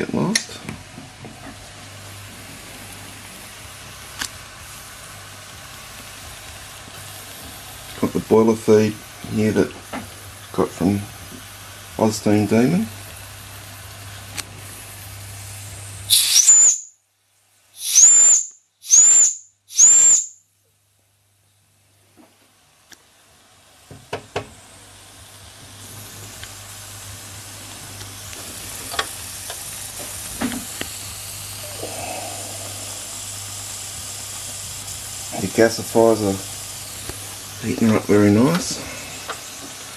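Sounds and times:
steady steam hiss: 0:00.0 - 0:20.3, 0:21.0 - 0:39.9
steam whistle: 0:16.1 - 0:16.9, 0:17.8 - 0:20.4.

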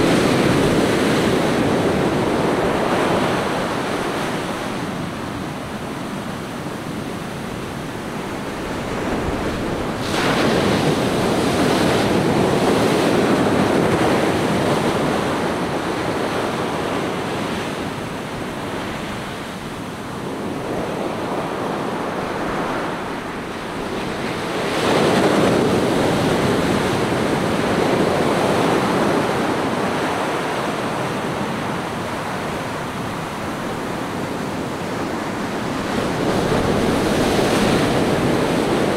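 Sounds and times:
ocean waves breaking on beach: 0:00.0 - 0:38.9.

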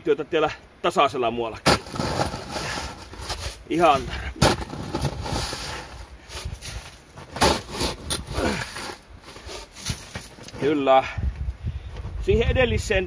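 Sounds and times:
snow shovel scraping packed snow: 0:01.7 - 0:10.1.

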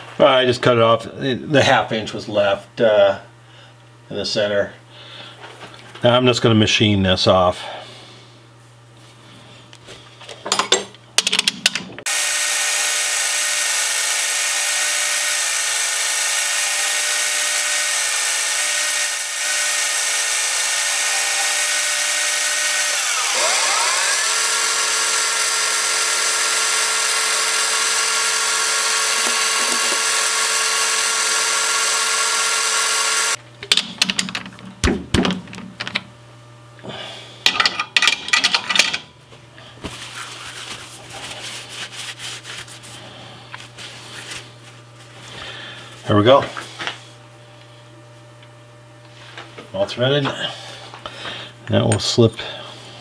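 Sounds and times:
metal lathe whine: 0:12.1 - 0:33.4.

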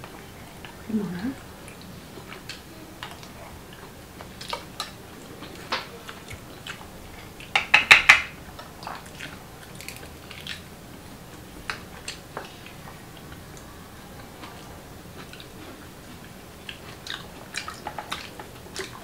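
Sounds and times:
clam shells clicking and clacking: 0:07.5 - 0:08.3.

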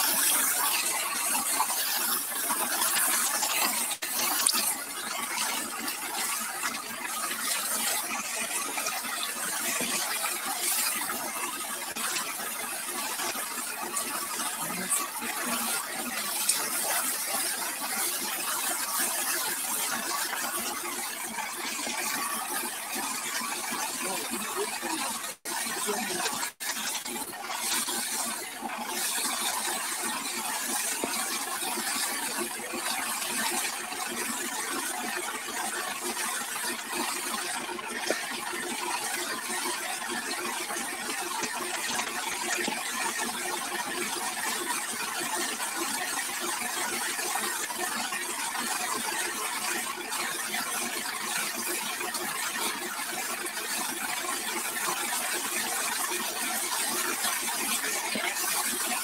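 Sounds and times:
hose water spray hissing: 0:00.0 - 0:20.6, 0:21.2 - 0:31.0.

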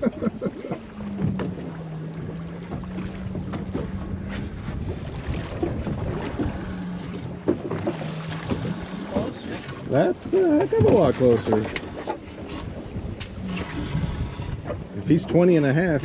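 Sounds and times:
boat motor hum: 0:00.0 - 0:16.0
wind on microphone: 0:01.0 - 0:07.2, 0:12.4 - 0:16.0.

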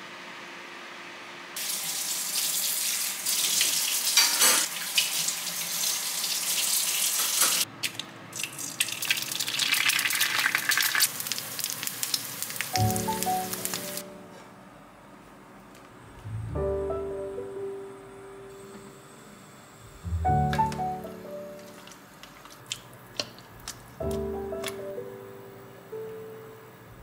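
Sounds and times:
egg sizzling in a skillet: 0:08.4 - 0:14.0
soft piano music: 0:12.7 - 0:15.2, 0:16.0 - 0:19.1, 0:19.9 - 0:22.2, 0:24.0 - 0:27.0.

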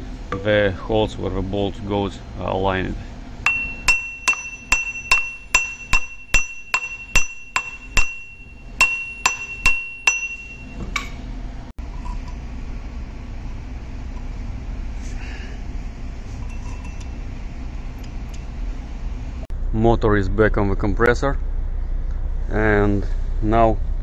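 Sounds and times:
hammer tapping metal pulley: 0:03.5 - 0:10.7
pulley ringing: 0:03.5 - 0:10.8.

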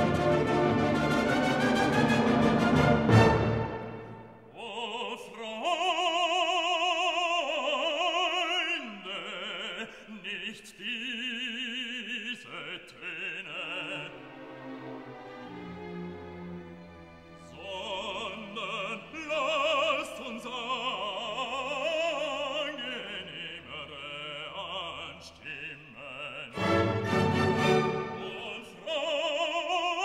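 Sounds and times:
orchestra playing: 0:00.0 - 0:04.5, 0:14.0 - 0:18.9, 0:26.5 - 0:28.7
operatic voice singing: 0:04.5 - 0:14.6, 0:17.4 - 0:30.0.

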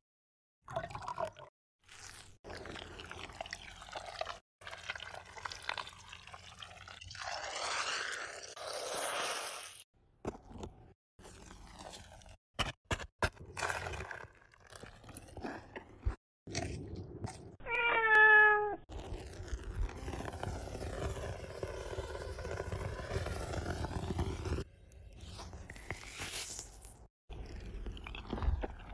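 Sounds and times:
cat meowing: 0:17.6 - 0:18.8.

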